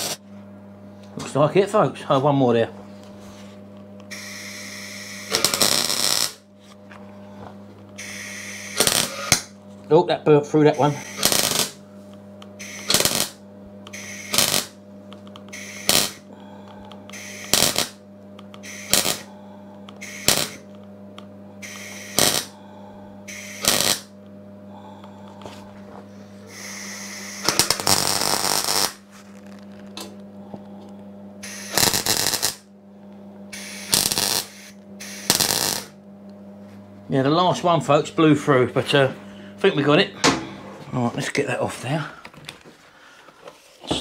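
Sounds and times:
welding arc crackling: 0.0 - 0.2, 4.0 - 6.5, 8.0 - 9.6, 10.5 - 16.4, 17.0 - 22.7, 23.3 - 24.2, 26.4 - 30.1, 31.4 - 32.7, 33.5 - 36.0
steady electrical hum: 0.0 - 44.0.

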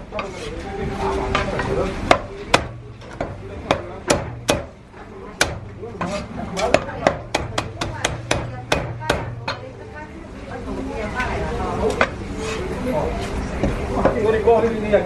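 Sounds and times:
cleaver chopping on wooden block: 2.1 - 4.8, 6.7 - 9.3.

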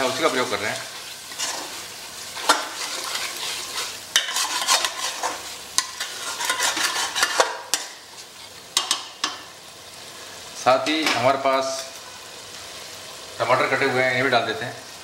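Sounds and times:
steady sizzle: 0.0 - 15.0
spatula scraping a metal pot: 1.3 - 1.8, 2.4 - 9.0.

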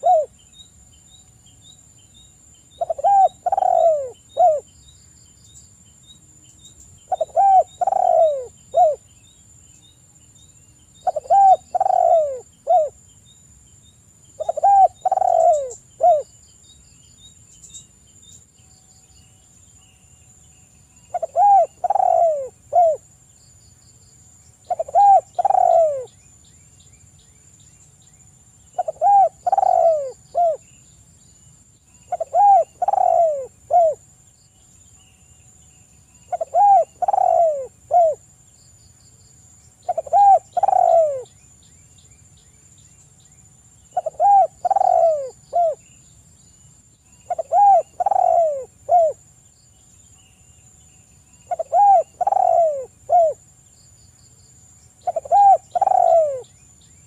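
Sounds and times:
dove cooing: 0.0 - 0.3, 2.8 - 4.7, 7.1 - 9.0, 11.0 - 13.0, 14.4 - 16.3, 21.1 - 23.0, 24.7 - 26.1, 28.8 - 30.6, 32.1 - 34.0, 36.3 - 38.2, 39.8 - 41.3, 43.9 - 45.8, 47.3 - 49.2, 51.5 - 53.4, 55.0 - 56.4.

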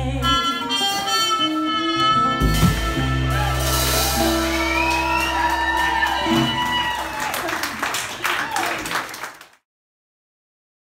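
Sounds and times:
acoustic guitar: 0.0 - 5.5
trumpet: 0.0 - 6.7
drum kit: 0.0 - 7.3.

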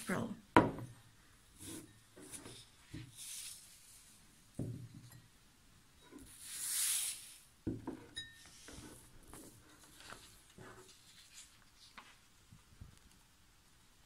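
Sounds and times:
glass knocked on tabletop: 0.6 - 0.9, 4.6 - 5.2
hand sliding over paper: 1.6 - 4.1.

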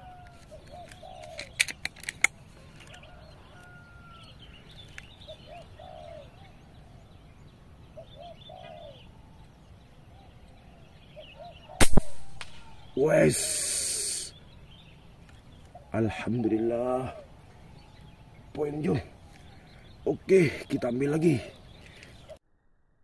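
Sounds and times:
birds whistling: 0.0 - 1.9, 2.9 - 22.4
doves cooing: 0.0 - 22.4
sharp clicks: 11.8 - 12.8.

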